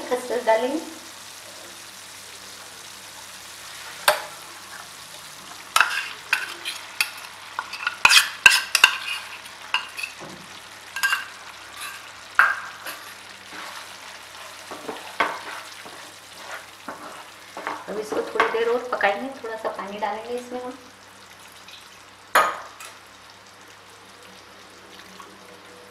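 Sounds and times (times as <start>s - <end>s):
masala sizzling in oil: 0.0s - 25.9s
utensils clicking and scraping pan: 5.8s - 10.3s, 11.0s - 18.6s.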